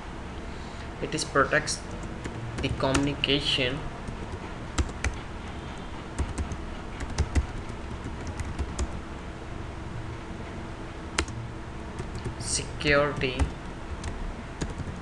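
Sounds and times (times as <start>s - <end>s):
low steady hum: 0.0s - 15.0s
keyboard typing clicks: 4.1s - 5.2s, 6.2s - 9.0s, 11.2s - 11.4s, 12.0s - 12.4s, 13.2s - 15.0s.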